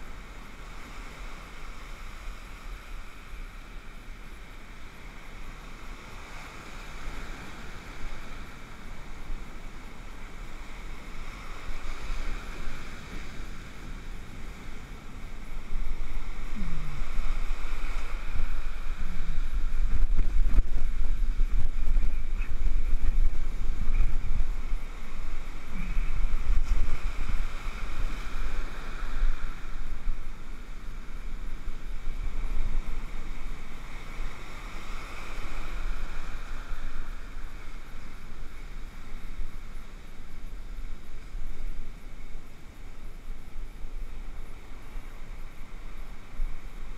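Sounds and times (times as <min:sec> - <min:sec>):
storm surf washing up beach: 0:00.0 - 0:46.9
wind rumble on microphone: 0:00.0 - 0:46.9.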